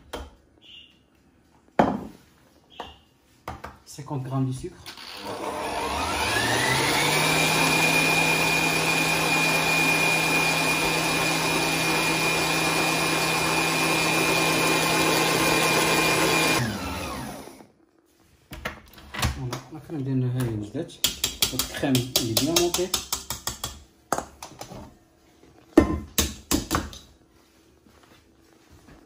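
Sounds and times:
stand mixer motor whine: 5.0s - 17.7s.

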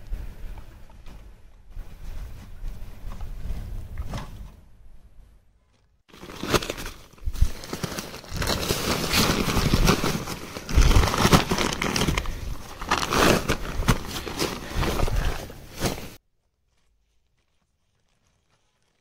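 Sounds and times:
wind rumbling on microphone: 0.0s - 5.2s
nylon bag rustling and crinkling: 5.8s - 19.0s
bag thumping: 6.1s - 16.2s.

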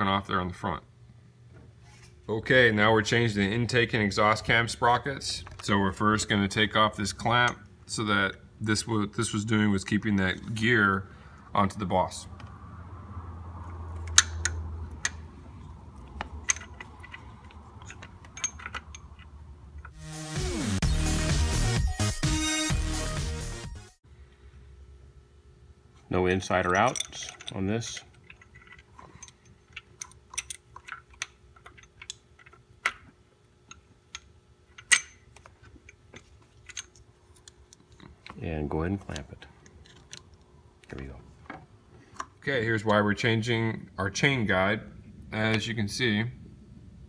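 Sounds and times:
low steady hum: 0.0s - 20.0s, 24.0s - 47.0s
light metallic clicks and clinks: 16.2s - 19.9s, 26.5s - 32.2s.

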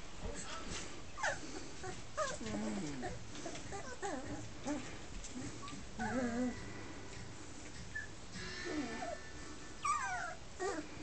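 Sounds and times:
puppies whimpering: 1.2s - 6.6s, 9.8s - 11.0s
puppy squeak: 9.8s - 10.8s.

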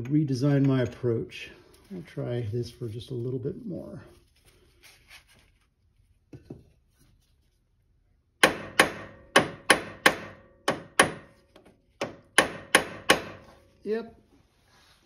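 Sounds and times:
hammer striking metal punch: 8.4s - 11.4s, 12.0s - 13.6s.

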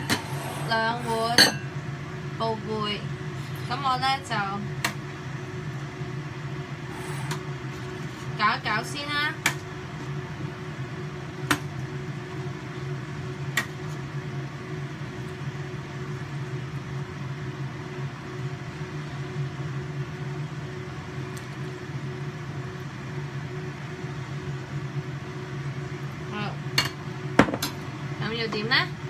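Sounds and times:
range hood fan humming: 0.0s - 29.0s.

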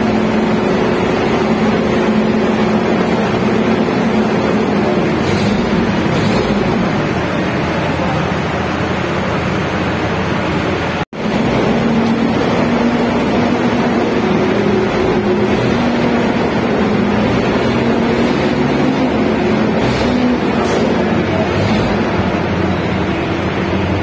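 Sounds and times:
spraying machine drone with hiss: 0.0s - 8.5s.

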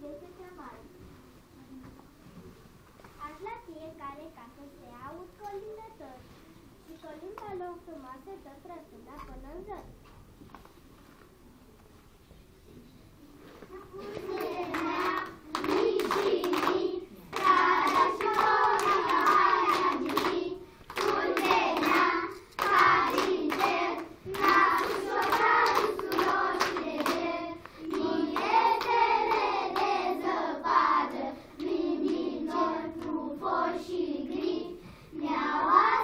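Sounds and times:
children singing in unison: 14.1s - 36.0s
hands clapping in time: 14.2s - 29.9s.

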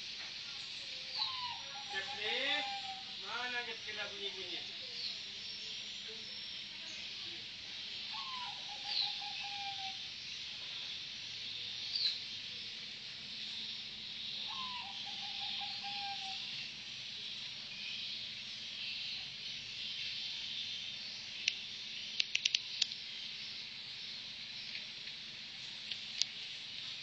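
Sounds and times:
steady high hiss: 0.0s - 27.0s
dove trilling coo: 1.2s - 3.2s, 8.1s - 10.1s, 14.4s - 16.5s.

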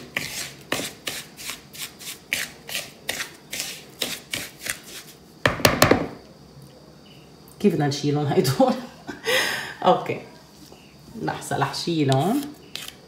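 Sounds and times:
wooden spoon scraping gritty mixture: 0.0s - 5.2s, 12.1s - 13.0s.

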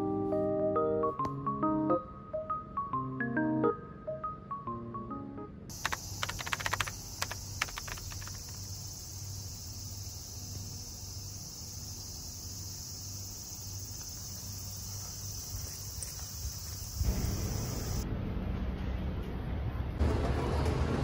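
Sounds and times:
sharp clicks: 5.7s - 8.8s
insects shrilling: 5.7s - 18.0s.

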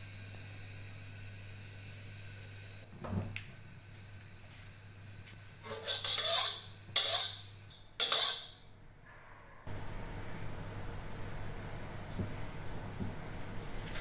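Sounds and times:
metal spatula scraping a wok: 5.6s - 8.6s.

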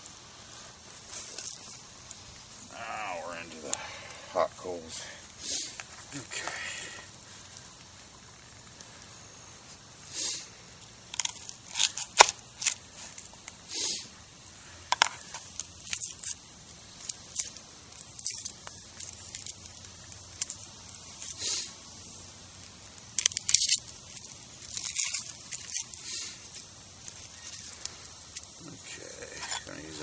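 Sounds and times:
onion skin crackling and tearing: 10.8s - 13.6s, 14.5s - 21.8s, 22.5s - 30.0s.

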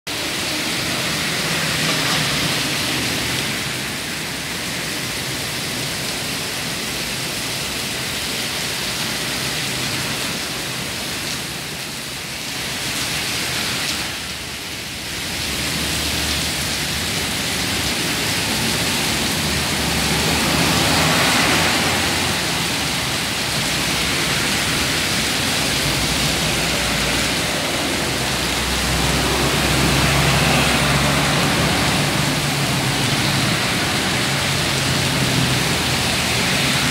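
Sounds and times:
heavy rain on street: 0.1s - 36.9s
vehicles driving on wet road: 0.1s - 36.9s.

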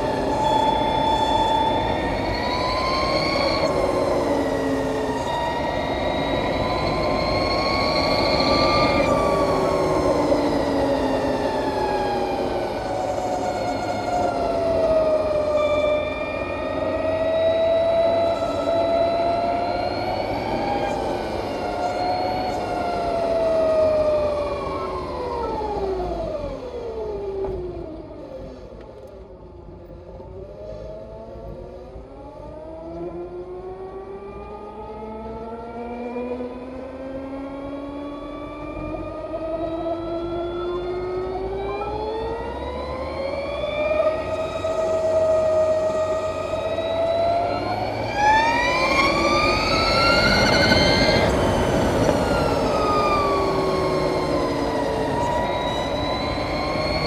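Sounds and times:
electric motorcycle whine: 0.0s - 57.0s
wind and road rumble: 0.0s - 57.0s.

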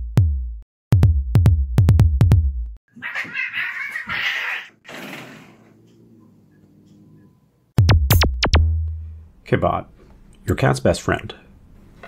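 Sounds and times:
drum machine kick drum: 0.0s - 2.8s, 7.8s - 9.3s.

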